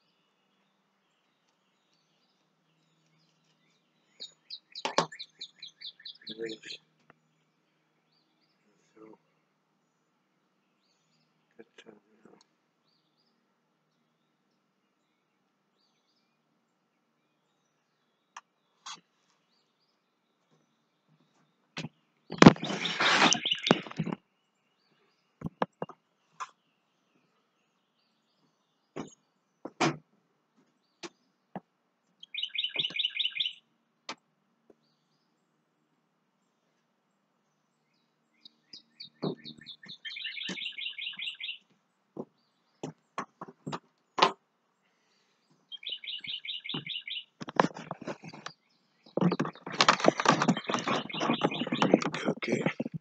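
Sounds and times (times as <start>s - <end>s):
bird chattering trill: 22.3s - 24.1s, 32.2s - 33.6s, 38.8s - 41.6s, 45.7s - 47.4s, 49.4s - 53.0s
camera rubbing on jacket: 22.3s - 24.2s, 47.4s - 48.4s, 49.3s - 53.0s
sharp clicks and knocks: 25.4s - 26.5s, 29.0s - 30.0s, 42.2s - 44.4s, 46.7s - 53.0s.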